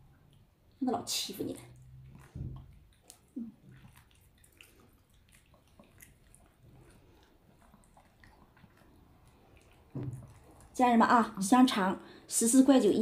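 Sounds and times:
dogs chewing and licking treats: 1.5s - 11.8s.

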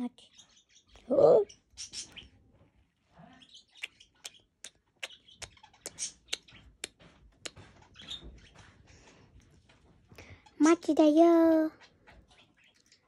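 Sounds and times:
lip-smacking kisses: 3.8s - 7.6s.

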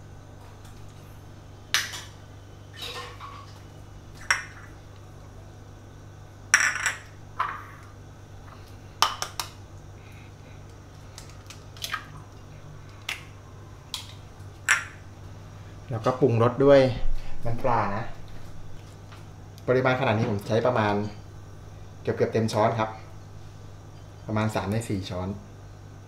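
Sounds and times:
egg cracking: 9.0s - 9.9s, 10.6s - 15.0s.

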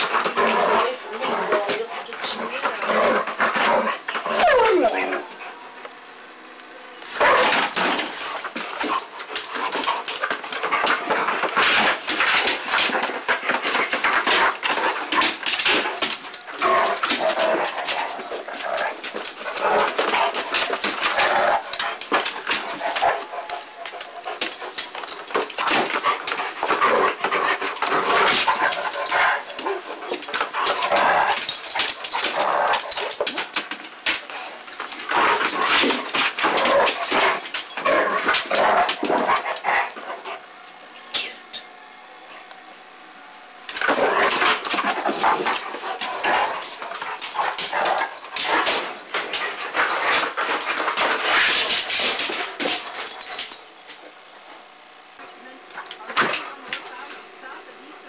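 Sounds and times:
dog whining: 4.2s - 5.3s.

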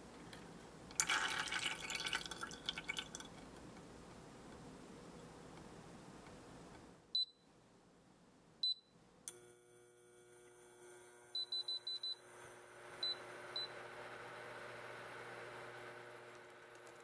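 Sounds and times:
cooktop touch control beeps: 7.2s - 7.5s, 11.4s - 12.3s
hob humming with faint whine: 8.5s - 17.0s.

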